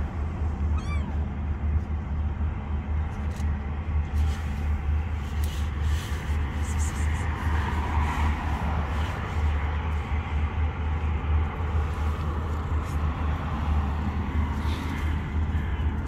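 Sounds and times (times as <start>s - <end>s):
steady low rumble: 0.0s - 16.0s
kitten meowing: 0.7s - 1.2s.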